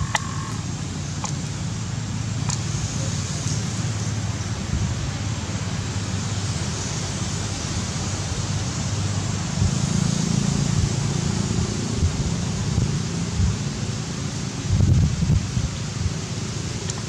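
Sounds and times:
wind on microphone: 0.0s - 1.4s, 9.4s - 17.0s.

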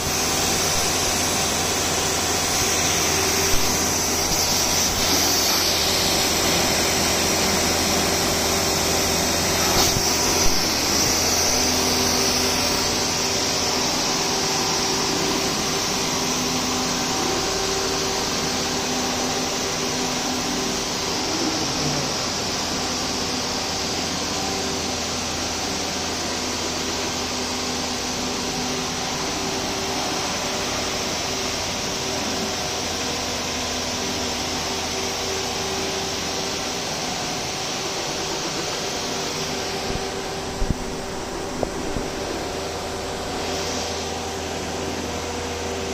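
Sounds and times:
machinery hum and whir: 0.0s - 45.9s.

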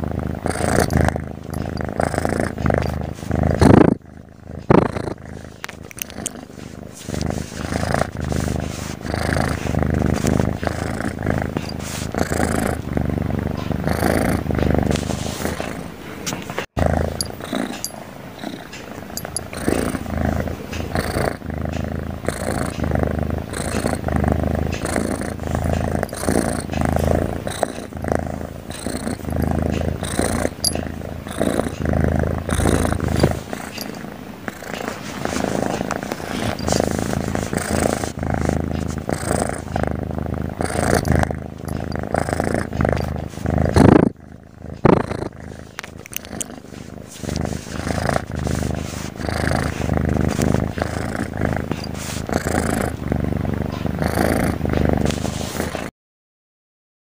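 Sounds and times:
kitten purring loudly: 0.0s - 55.9s.

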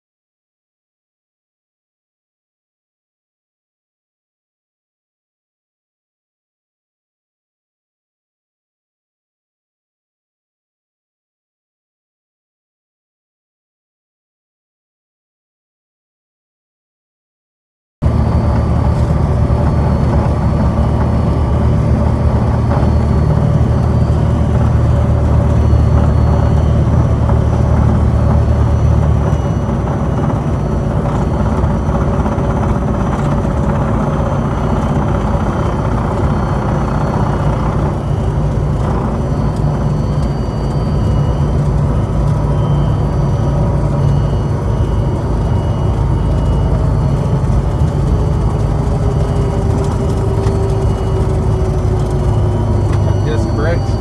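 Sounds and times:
propeller plane engine drone: 18.0s - 54.0s.

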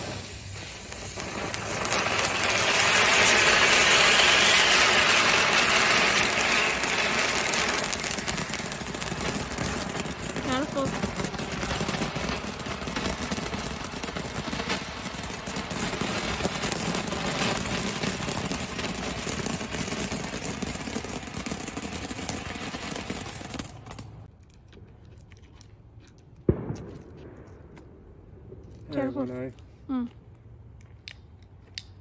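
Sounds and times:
firework hissing and crackling: 0.0s - 24.3s.

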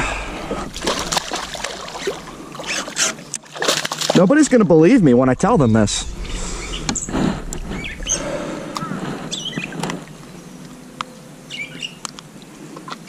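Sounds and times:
small birds chirping: 7.7s - 12.6s.

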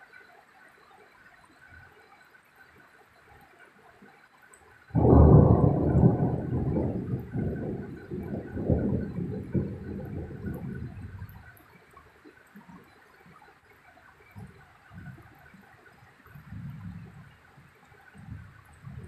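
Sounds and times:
faint steady rain: 0.0s - 19.0s
thunder clap and rumble: 5.0s - 11.6s.

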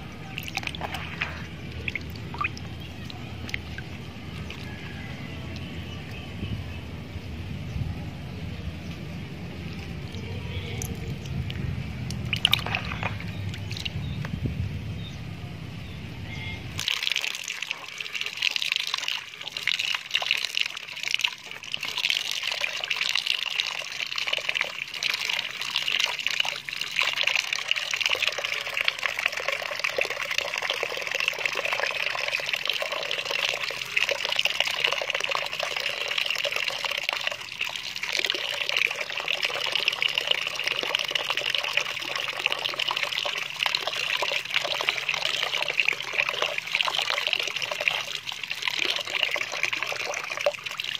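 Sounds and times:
water splashing into a basin: 0.0s - 6.3s, 10.0s - 14.0s, 16.8s - 50.9s
hand sloshing snails in water: 12.2s - 13.9s.

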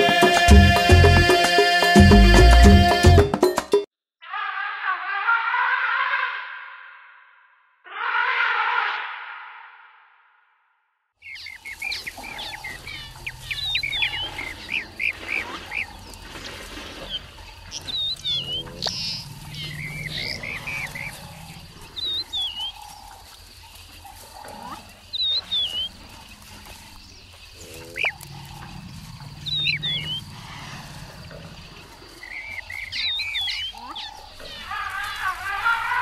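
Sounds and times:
birds chirping: 11.2s - 36.0s
elephants rumbling: 11.4s - 36.0s.

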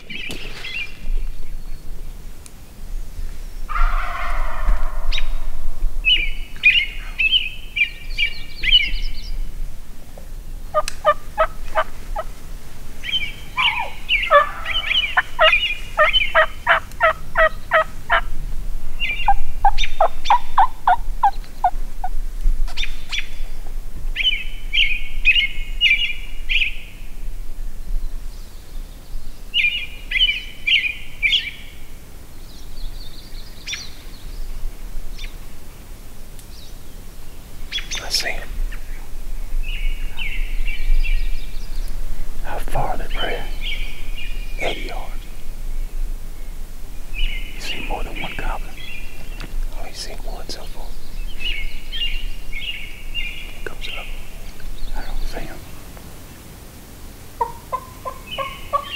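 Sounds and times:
turkey yelps: 3.7s - 5.3s, 10.7s - 12.3s, 13.6s - 18.2s, 57.4s - 58.9s
turkeys gobbling: 3.7s - 5.5s, 10.7s - 12.4s, 13.0s - 18.3s, 19.2s - 22.2s, 57.3s - 58.9s.

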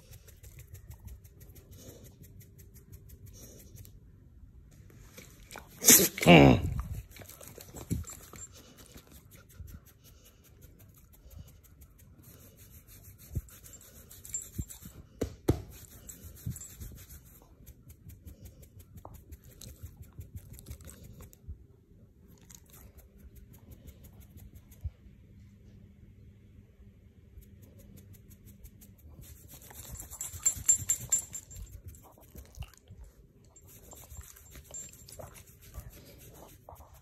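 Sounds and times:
hand scratching dog fur: 5.0s - 20.7s, 27.7s - 32.2s, 33.6s - 37.0s.

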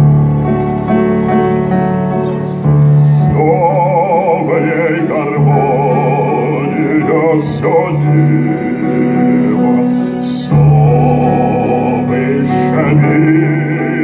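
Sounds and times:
piano: 0.0s - 14.0s
man singing operatically: 3.0s - 14.0s.

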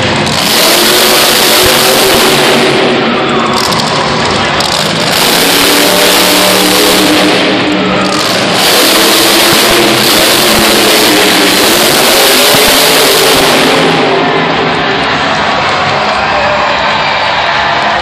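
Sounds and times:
monster truck engine revving: 0.0s - 18.0s.

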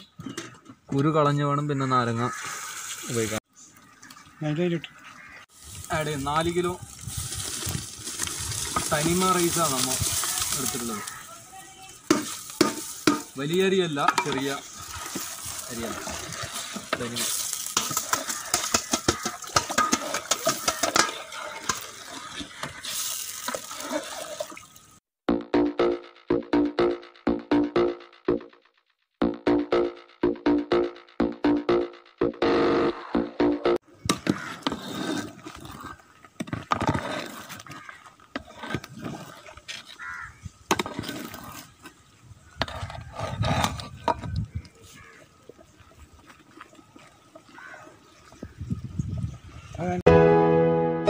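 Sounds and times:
rice and water splashing into pot: 5.5s - 11.3s, 12.0s - 25.0s
water sloshing: 14.0s - 25.0s, 45.0s - 48.6s.

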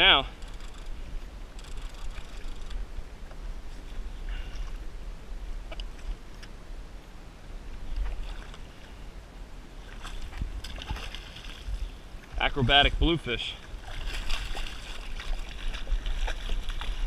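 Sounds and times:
water sloshing against kayak: 0.0s - 6.6s, 7.8s - 12.4s, 13.5s - 17.0s
wind rumbling on microphone: 0.0s - 17.0s
splash: 9.8s - 11.8s, 13.8s - 17.0s.

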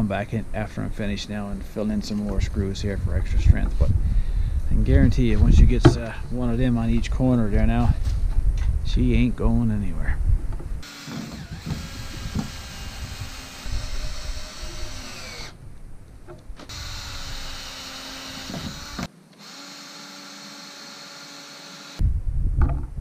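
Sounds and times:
cordless drill driving screws: 10.8s - 15.6s, 16.7s - 22.0s.

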